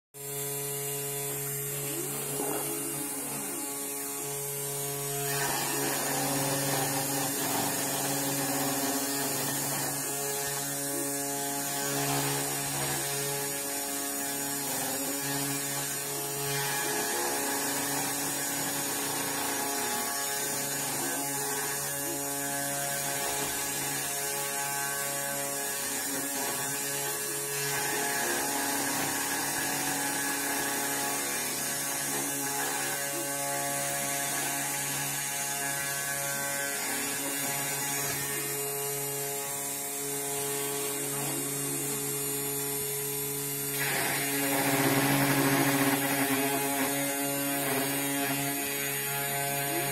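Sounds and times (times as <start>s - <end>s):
spindle motor humming: 0.2s - 49.9s
stepper motors whirring: 0.2s - 49.9s.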